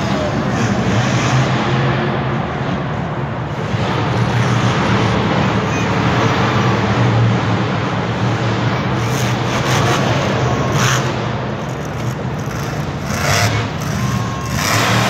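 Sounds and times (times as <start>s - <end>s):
monster truck engine revving: 0.0s - 15.0s.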